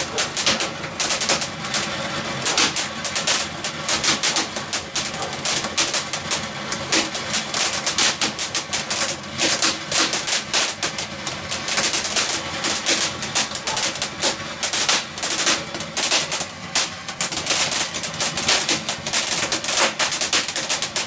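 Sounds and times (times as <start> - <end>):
firework fountain crackling: 0.0 - 21.0.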